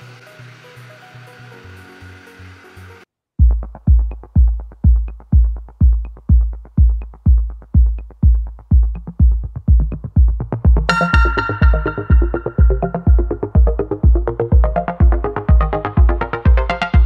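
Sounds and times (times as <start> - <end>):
deep kick drum beat: 3.4 - 17.0
synth notes: 10.8 - 17.0
cymbal crash: 10.9 - 13.9.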